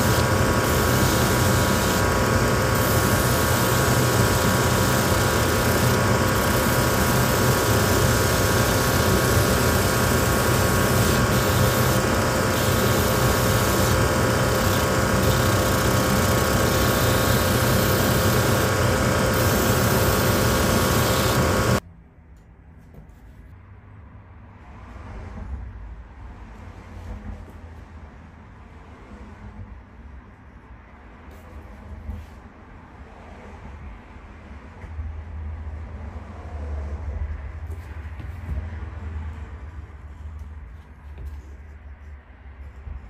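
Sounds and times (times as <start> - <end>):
shoe repair machine humming: 0.0 - 21.8.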